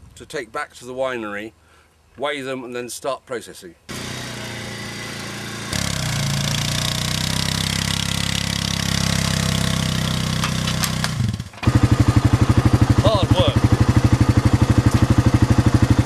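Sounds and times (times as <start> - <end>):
quad bike engine running: 3.9 - 16.0.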